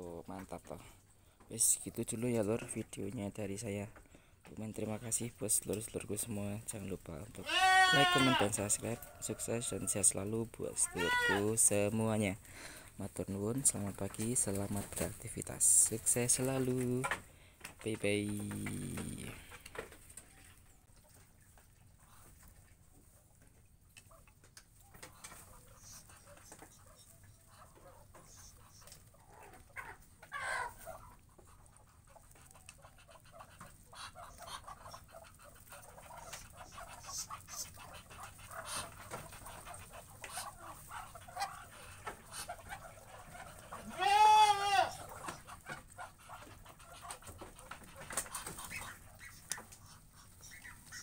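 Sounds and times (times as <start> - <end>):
ducks clicking and rustling: 0.0 - 51.0
goat bleating: 7.3 - 8.7, 10.8 - 11.6, 43.7 - 45.3.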